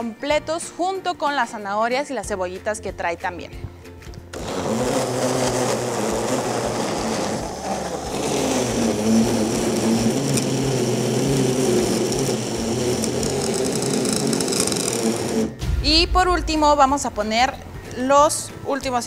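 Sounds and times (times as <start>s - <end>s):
blender motor running: 4.3s - 15.6s.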